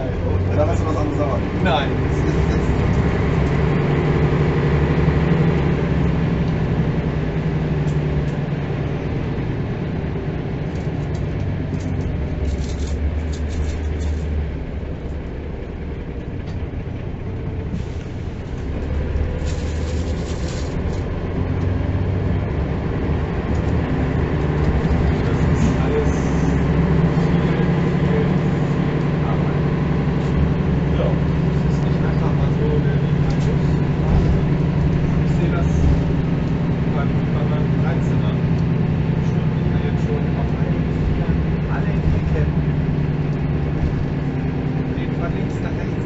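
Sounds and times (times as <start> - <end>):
bus diesel engine: 0.0 - 46.0
road rumble: 0.0 - 46.0.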